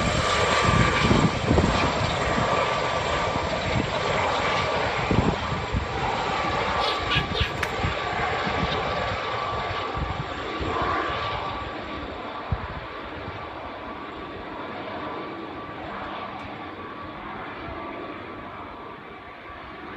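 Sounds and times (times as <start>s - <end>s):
helicopters flying away: 0.0s - 19.9s.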